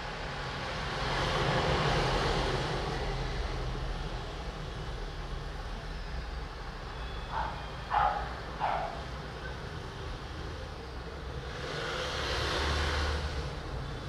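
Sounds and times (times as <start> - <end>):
road vehicle passing: 6.4 - 14.0.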